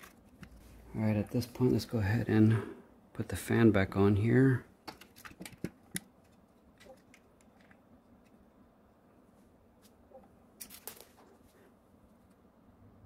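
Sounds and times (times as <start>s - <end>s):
faint clicks of handled parts: 4.8s - 8.4s, 10.6s - 12.4s.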